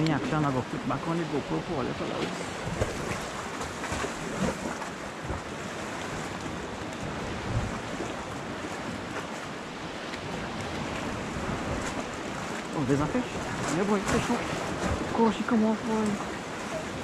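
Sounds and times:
sea water lapping against rocks: 0.0s - 17.0s
wind noise on microphone: 1.9s - 15.3s.

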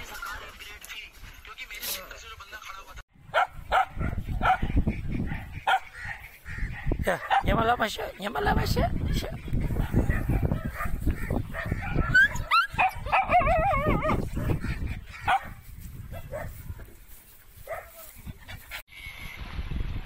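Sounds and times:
small dog yipping: 11.6s - 14.2s.

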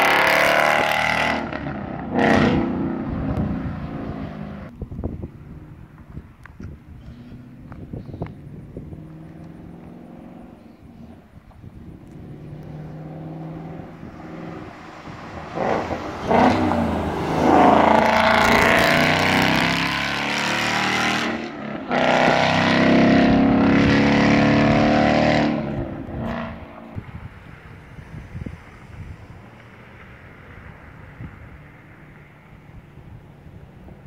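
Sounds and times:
car accelerating past: 0.0s - 4.7s, 11.9s - 32.4s
car engine revving: 0.0s - 4.7s, 7.0s - 27.8s.

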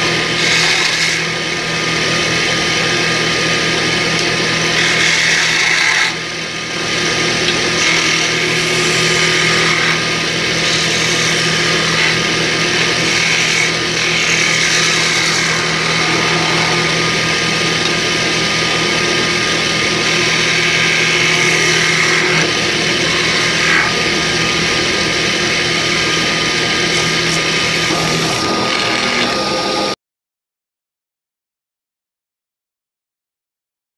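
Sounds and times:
wood lathe motor hum: 0.0s - 30.0s
turning tool cutting wood hiss: 4.2s - 6.3s, 6.9s - 29.9s.

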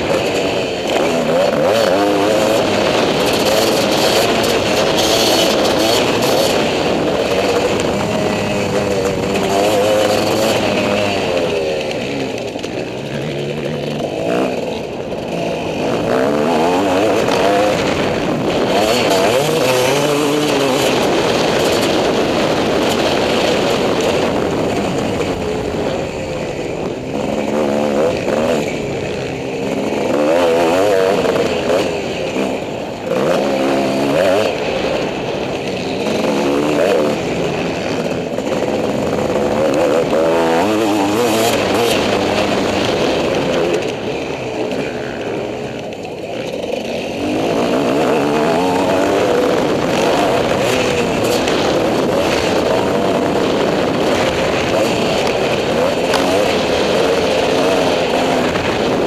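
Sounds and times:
motorcycle engine revving: 0.0s - 59.0s.

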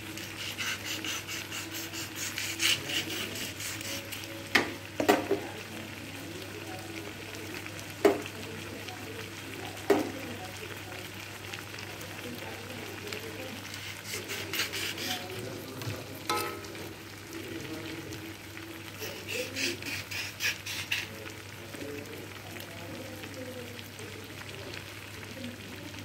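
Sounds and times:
chicken sizzling in a wok: 0.0s - 26.0s
spoon scraping a pan: 0.1s - 5.4s, 13.6s - 15.4s, 16.3s - 16.9s, 19.0s - 21.2s
spoon clanking on metal pan: 4.5s - 5.4s, 16.3s - 16.9s.

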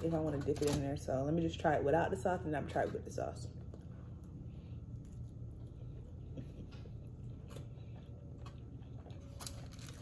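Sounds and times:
low hum: 1.0s - 10.0s
person chewing food: 3.6s - 10.0s.

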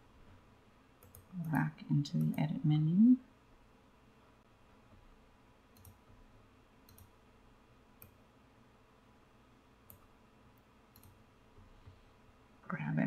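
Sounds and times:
computer mouse clicks: 1.0s - 2.5s, 5.7s - 6.2s, 6.8s - 7.2s, 8.0s - 8.2s, 9.8s - 12.0s.

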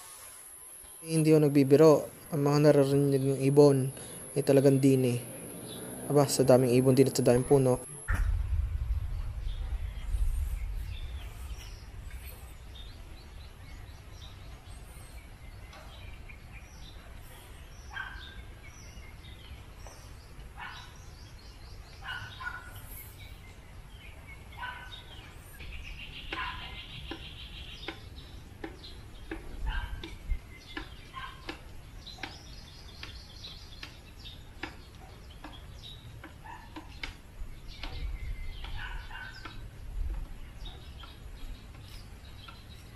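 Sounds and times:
birds chirping and trilling: 0.0s - 42.9s
low steady rumble: 3.4s - 17.9s.

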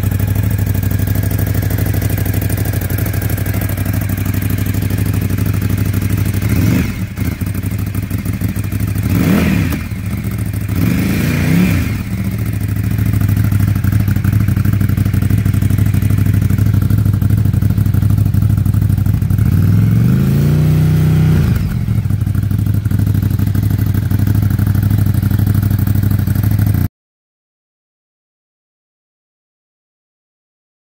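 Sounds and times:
motorcycle engine idling: 0.0s - 26.9s
motorcycle engine revving: 0.0s - 26.9s.

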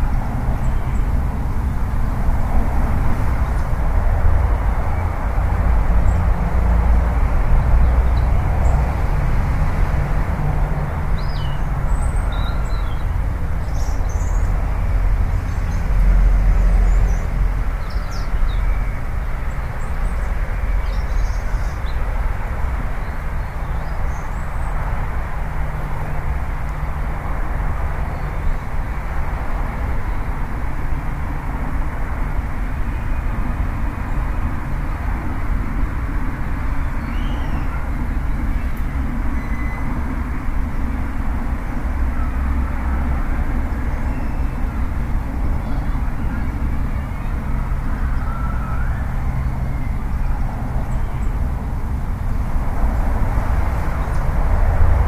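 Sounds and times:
low outdoor rumble with hiss: 0.0s - 55.0s.

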